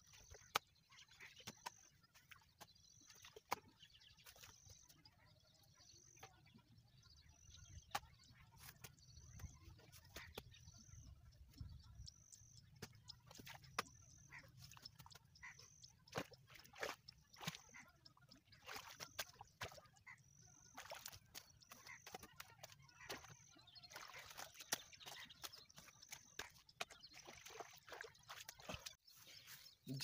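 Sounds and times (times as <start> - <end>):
spade working wet mud: 7.6 - 30.0.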